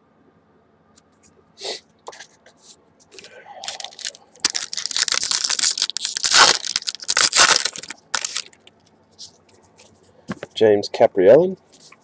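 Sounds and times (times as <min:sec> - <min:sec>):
foil wrapper crinkling: 0:03.1 - 0:09.4.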